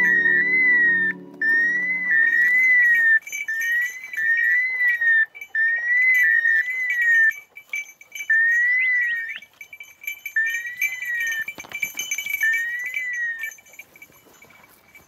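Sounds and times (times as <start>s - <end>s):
high warbling whistle-like call: 0.0s - 6.2s.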